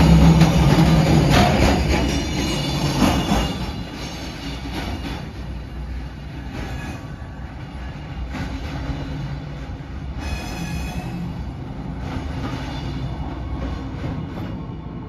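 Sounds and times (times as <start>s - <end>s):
train wheels on rails: 0.0s - 15.0s
high wheel squeal: 1.6s - 5.0s, 10.2s - 11.4s.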